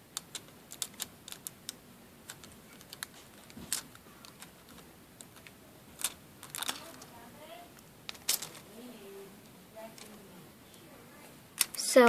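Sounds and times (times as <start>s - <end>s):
nail foil clicking and ticking: 0.1s - 7.1s.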